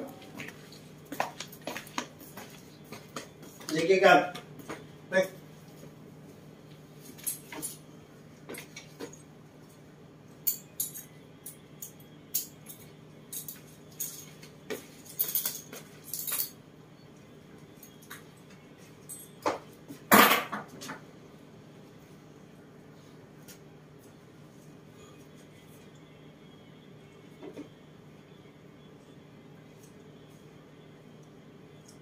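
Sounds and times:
light sharp clinks and clicks: 10.4s - 18.3s.

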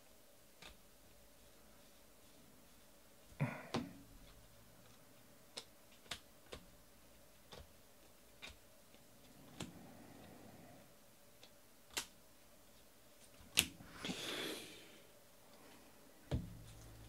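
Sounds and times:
cards flipped clicking: 13.4s - 13.8s.

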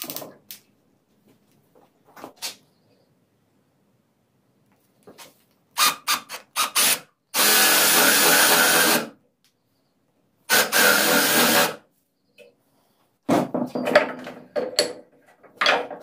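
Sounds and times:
cordless drill boring into wood: 5.8s - 9.1s, 10.5s - 11.8s.

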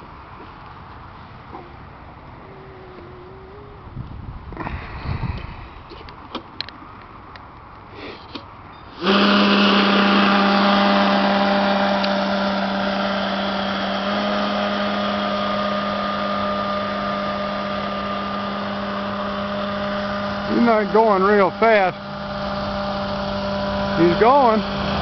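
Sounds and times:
model boat motor and propeller: 8.9s - 25.0s.

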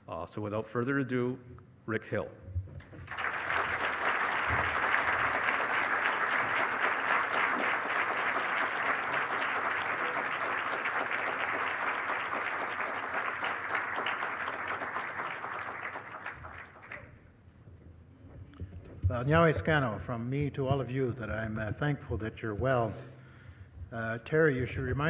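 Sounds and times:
audience applauding: 2.9s - 17.1s.

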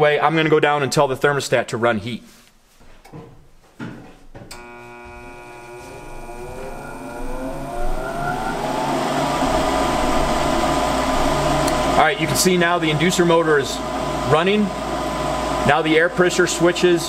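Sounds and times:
inducer motor whine: 4.5s - 17.0s
rush of air with low hum: 6.7s - 15.6s.

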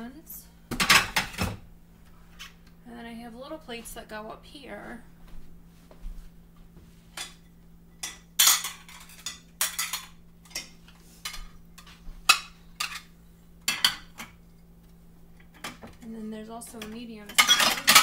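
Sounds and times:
plates clinking: 7.2s - 14.4s, 17.3s - 18.0s.

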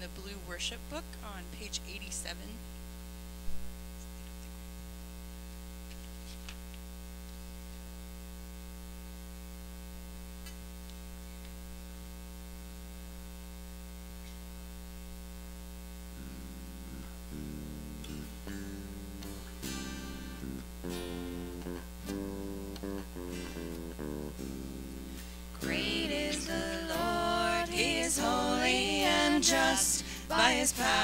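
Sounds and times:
electrical mains hum: 0.0s - 31.0s
guitar notes: 16.2s - 31.0s.

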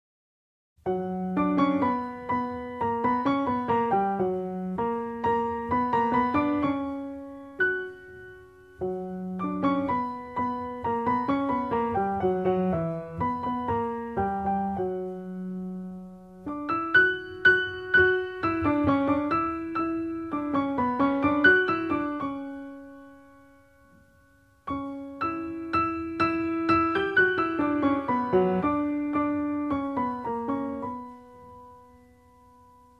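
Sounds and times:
solo piano music: 0.8s - 32.9s.

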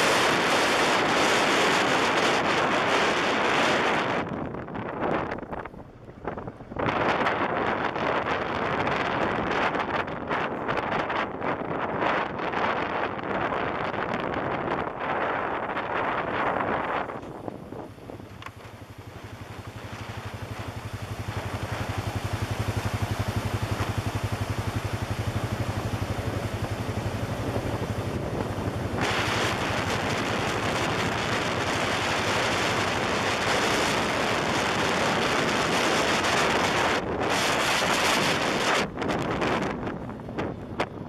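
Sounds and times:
wind rush on microphone: 0.0s - 41.0s
engine pulsing drone: 14.9s - 41.0s.

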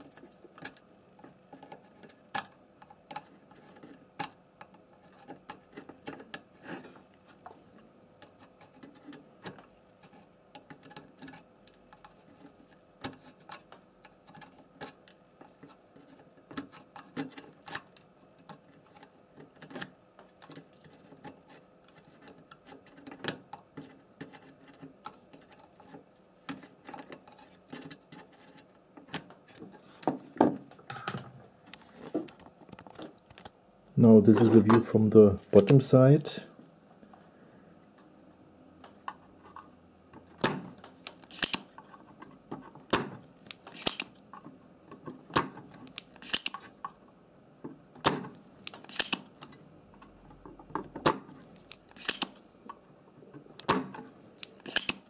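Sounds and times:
pliers and soldering iron tapping metal: 40.4s - 41.7s, 42.9s - 44.2s, 48.0s - 49.3s, 51.6s - 52.4s, 54.4s - 55.0s.

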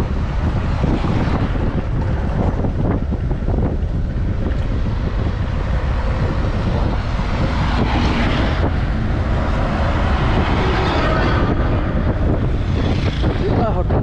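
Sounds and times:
truck passing by: 0.0s - 13.8s
motorcycle engine rumble: 0.0s - 14.0s
wind rushing over microphone: 0.0s - 14.0s.

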